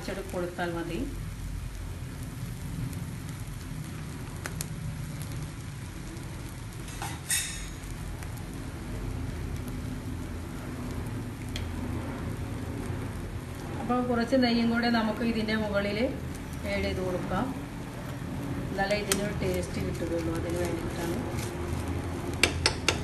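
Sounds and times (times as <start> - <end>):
frying sizzle: 0.0 - 23.0.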